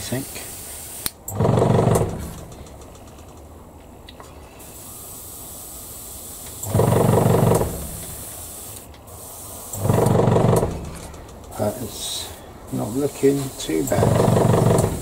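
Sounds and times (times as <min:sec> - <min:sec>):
airbrush spraying hiss: 0:00.0 - 0:01.3, 0:04.6 - 0:15.0
loud low buzz: 0:01.3 - 0:02.6, 0:06.6 - 0:08.4, 0:09.8 - 0:11.2, 0:13.9 - 0:15.0.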